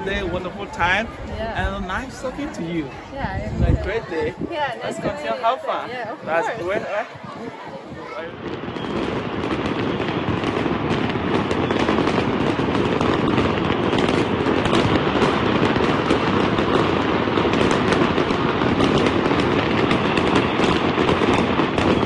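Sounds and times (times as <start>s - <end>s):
fireworks crackling and popping: 6.1s - 22.0s.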